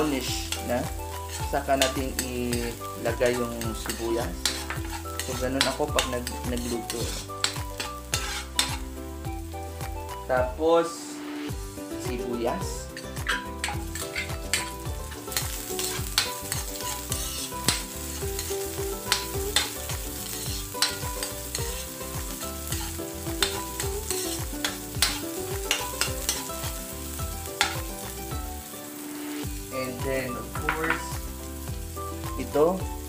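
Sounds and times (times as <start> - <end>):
onions sizzling in hot oil: 0.0 - 10.6, 11.4 - 33.0
metal spatula scraping wok: 0.2 - 8.9, 12.8 - 26.7, 27.5 - 27.9.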